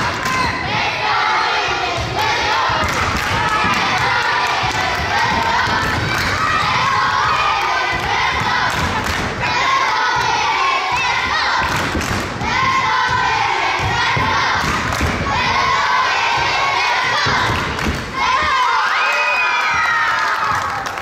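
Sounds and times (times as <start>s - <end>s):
children and spectators cheering: 0.0s - 11.7s, 12.4s - 21.0s.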